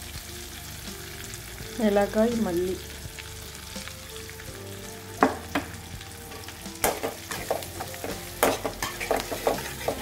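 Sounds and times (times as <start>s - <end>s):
frying in hot oil sizzle: 0.0s - 10.0s
utensils knocking against pan: 6.3s - 10.0s.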